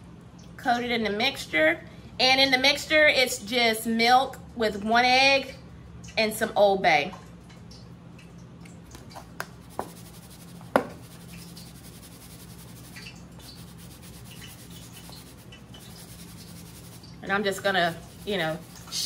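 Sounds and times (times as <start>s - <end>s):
steady low hum: 0.0s - 19.0s
rustling of dry breading: 9.4s - 19.0s.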